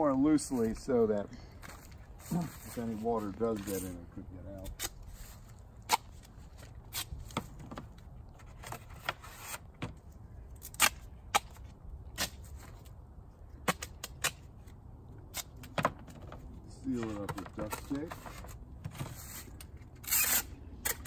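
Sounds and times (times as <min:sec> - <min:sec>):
rasping rustle: 0:01.6 - 0:09.8, 0:14.2 - 0:21.0.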